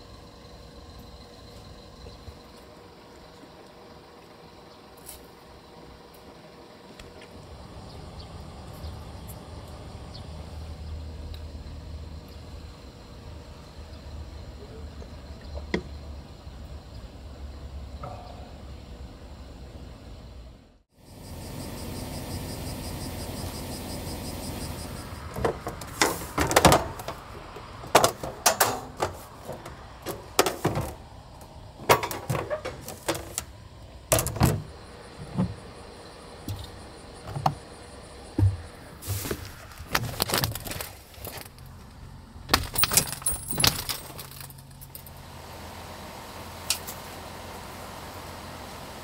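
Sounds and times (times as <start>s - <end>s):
steady low hum: 0.0s - 42.5s
gear rattling and knocking: 31.8s - 33.5s, 42.5s - 45.0s.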